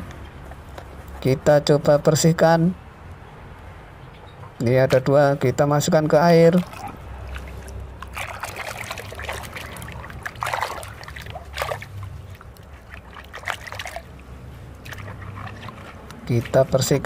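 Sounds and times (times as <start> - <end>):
water sloshing in plastic bucket: 6.4 - 17.0.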